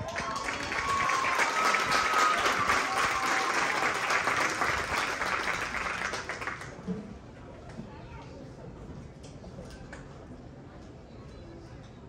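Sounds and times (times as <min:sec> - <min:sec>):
audience cheering: 0:00.0 - 0:06.2
audience applauding: 0:00.0 - 0:06.8.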